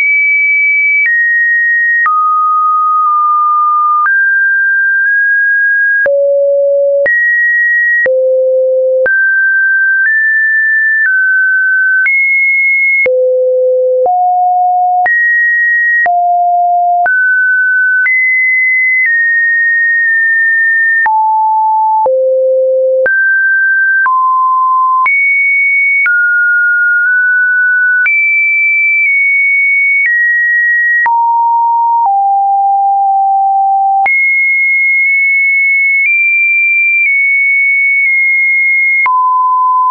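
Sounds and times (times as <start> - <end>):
electronic sine tone: 0.0 - 20.1.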